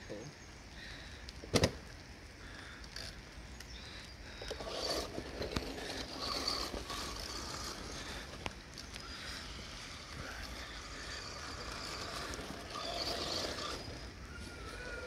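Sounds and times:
tyres over leaves: 0:00.1 - 0:15.0
electric motor whining: 0:04.4 - 0:15.0.

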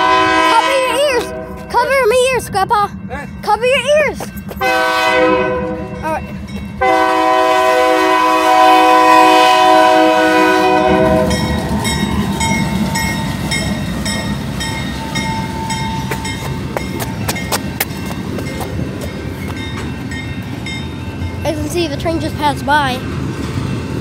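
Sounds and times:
locomotive air horn: 0:00.0 - 0:01.6, 0:04.6 - 0:06.0, 0:06.8 - 0:11.5
train rumbling past: 0:00.0 - 0:24.0.

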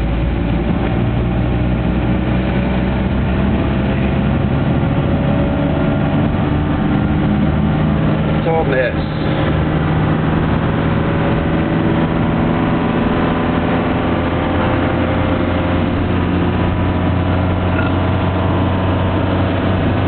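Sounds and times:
car engine running: 0:00.0 - 0:20.0
road noise: 0:00.0 - 0:20.0.

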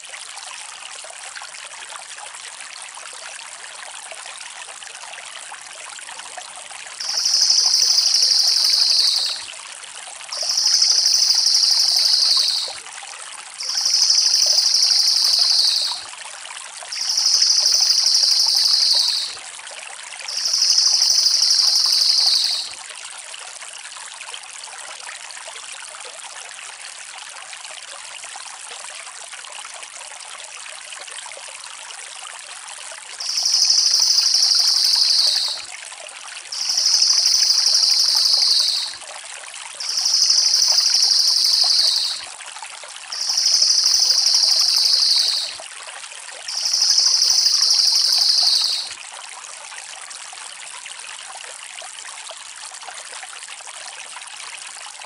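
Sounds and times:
running water: 0:06.9 - 0:12.8, 0:13.5 - 0:22.8, 0:33.2 - 0:35.7, 0:36.5 - 0:39.0, 0:39.7 - 0:45.6, 0:46.4 - 0:49.0.

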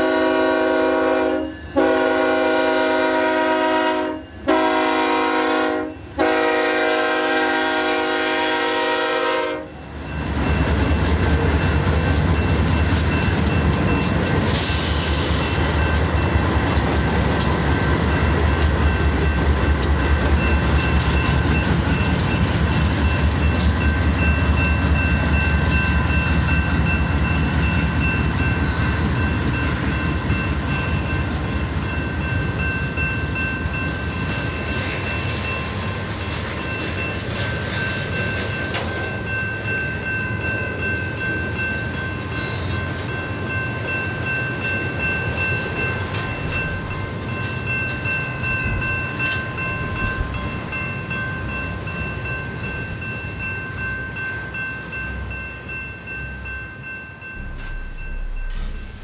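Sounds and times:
locomotive horn chord: 0:00.0 - 0:09.8
train rumbling past: 0:00.0 - 0:59.0.

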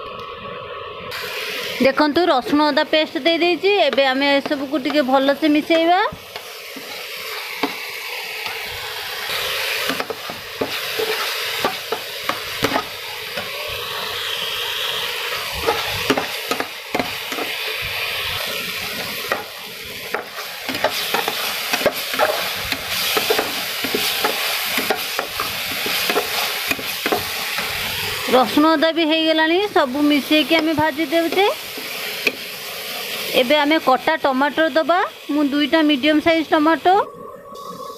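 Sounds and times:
paste sizzling in hot oil: 0:01.1 - 0:37.9
spatula clicking and scraping pan: 0:09.8 - 0:13.5, 0:15.6 - 0:17.5, 0:19.0 - 0:27.8.

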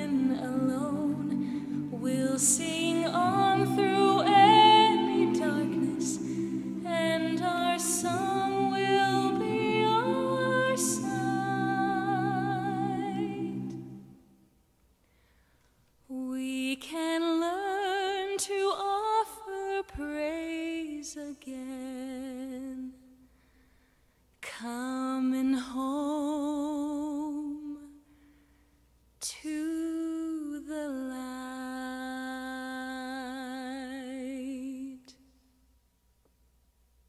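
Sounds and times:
woman singing unaccompanied: 0:00.0 - 0:13.7, 0:16.1 - 0:23.0, 0:29.2 - 0:35.1.

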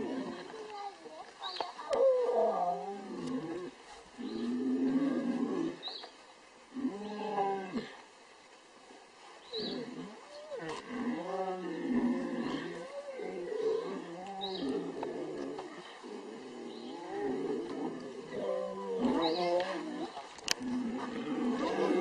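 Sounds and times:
lions moaning calls: 0:09.6 - 0:22.0.

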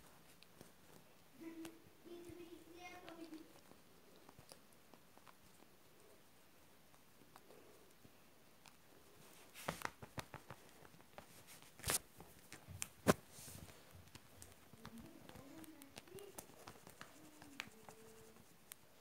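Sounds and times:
kitten rustling a plush toy: 0:00.0 - 0:19.0
soft taps and sharp clicks: 0:09.4 - 0:18.8.

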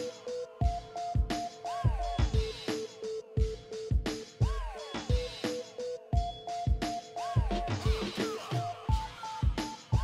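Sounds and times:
instrumental background music: 0:00.0 - 0:10.0
strong kick drum: 0:00.6 - 0:02.7, 0:03.4 - 0:05.4, 0:08.9 - 0:10.0.

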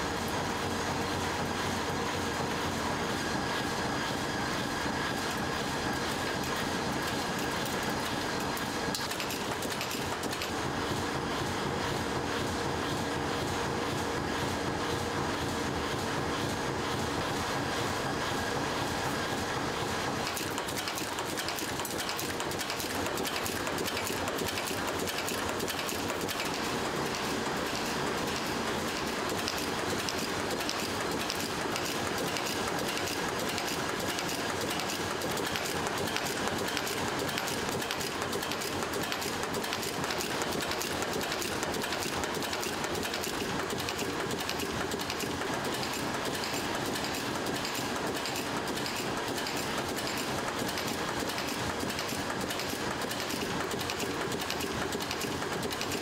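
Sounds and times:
heading machines clattering: 0:05.4 - 0:10.6.

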